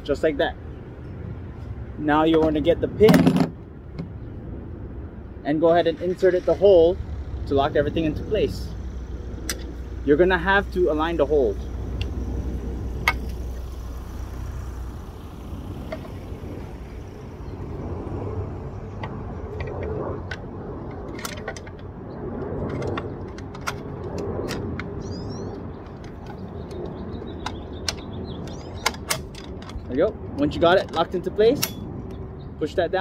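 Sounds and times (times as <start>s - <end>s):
low background rumble: 0.0s - 33.0s
metal pin clicking and scraping: 9.4s - 9.8s, 19.0s - 21.9s, 25.8s - 32.2s.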